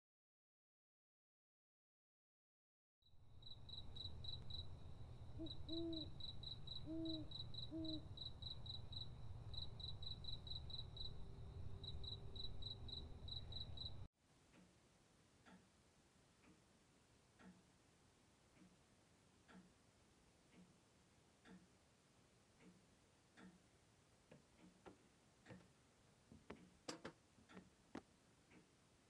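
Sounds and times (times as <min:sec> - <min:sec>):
crickets chirping: 0:03.1 - 0:14.1
clock ticking softly: 0:03.4 - 0:04.7, 0:12.1 - 0:29.0
owl hooting: 0:05.2 - 0:11.2.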